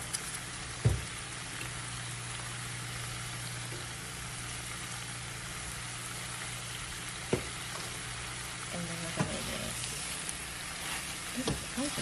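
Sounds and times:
spinach sizzling in a frying pan: 0.0 - 12.0.

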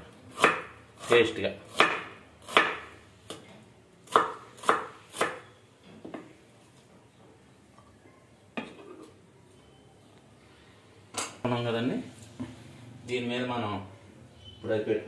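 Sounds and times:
knife chopping on wooden board: 0.3 - 0.7, 1.7 - 3.4, 4.1 - 5.4.

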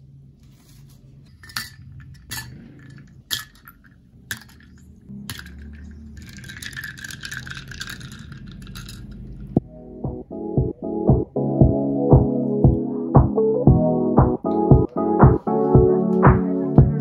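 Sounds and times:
ice cubes clinking into glass: 1.3 - 9.5
spoon stirring ice in glass: 1.3 - 9.5.

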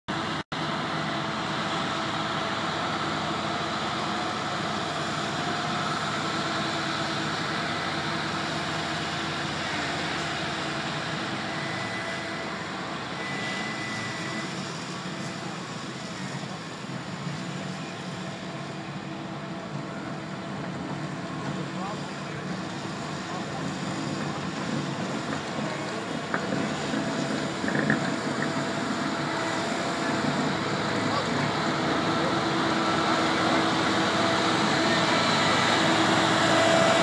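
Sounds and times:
engine drone: 0.1 - 37.0.

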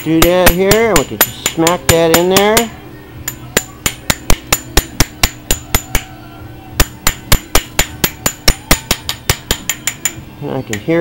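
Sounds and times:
hammer tapping metal: 0.0 - 6.1, 6.8 - 11.0.

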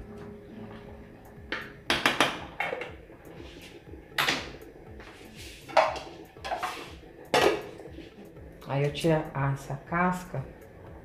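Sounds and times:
spoon scraping metal pot: 5.4 - 8.2
metal lid clattering: 5.7 - 7.7.

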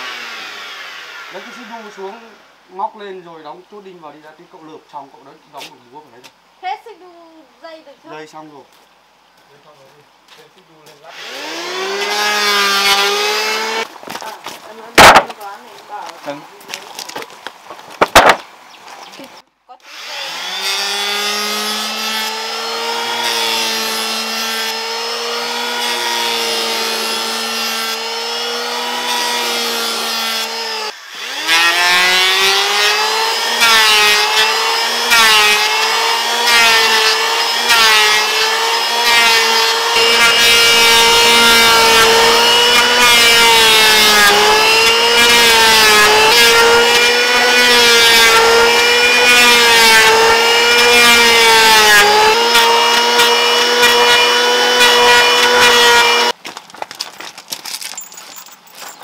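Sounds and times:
electric planer whining: 0.0 - 2.4, 11.1 - 13.9, 19.9 - 56.4.

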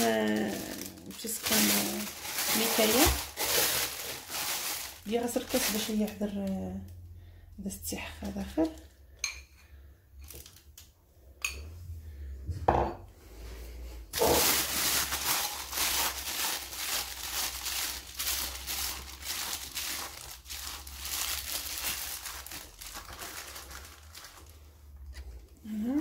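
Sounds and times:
plastic piping bag crinkling: 0.0 - 6.9, 14.1 - 26.0.

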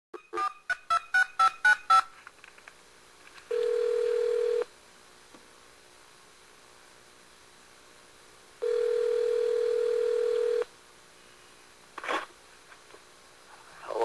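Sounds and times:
phone ringback tone: 3.5 - 4.7, 8.6 - 10.6.

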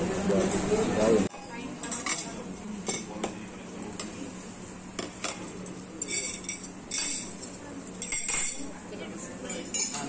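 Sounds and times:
cutlery and plates clinking: 1.8 - 3.4, 5.0 - 8.8, 9.4 - 10.0.

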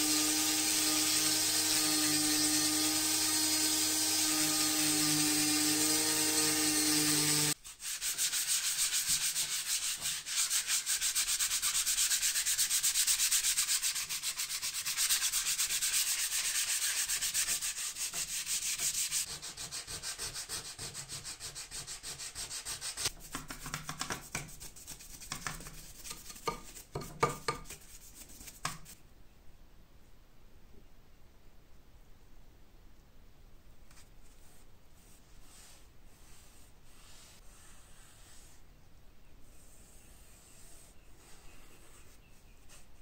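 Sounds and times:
hand sanding wood: 0.0 - 29.0
brush scrubbing metal plate: 6.8 - 23.4.

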